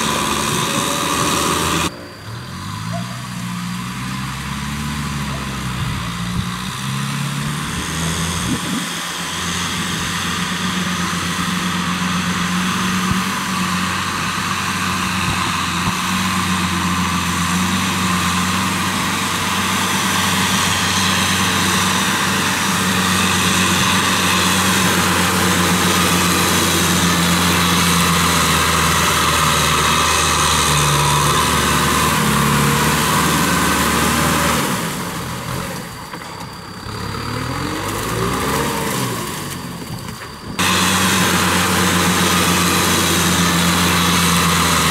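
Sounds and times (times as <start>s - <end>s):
rotary tiller churning soil: 0.0s - 1.9s, 3.8s - 44.9s
tractor diesel engine running: 0.0s - 44.9s.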